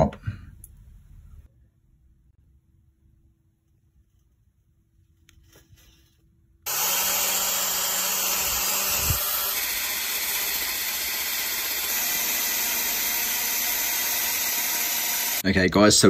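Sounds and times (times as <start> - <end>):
cordless drill motor whine: 6.7 - 15.4.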